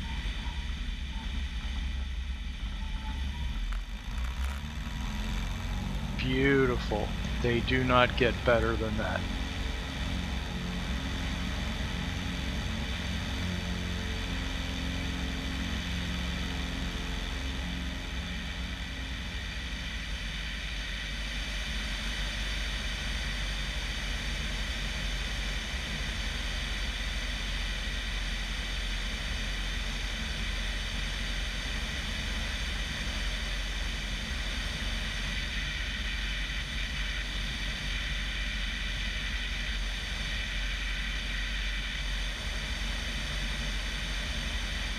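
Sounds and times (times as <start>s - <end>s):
propeller plane engine at high power: 0.0s - 44.9s.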